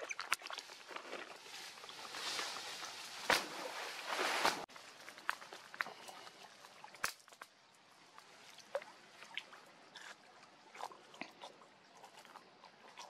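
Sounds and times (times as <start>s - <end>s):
water splashing and dripping: 0.0s - 1.3s, 4.8s - 11.4s.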